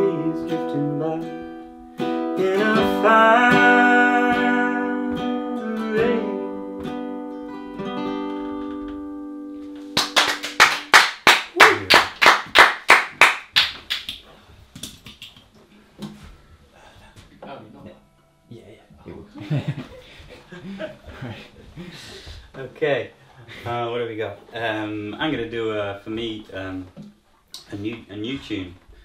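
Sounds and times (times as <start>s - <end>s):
strummed acoustic guitar: 0.0s - 10.0s
hand clapping: 9.9s - 15.5s.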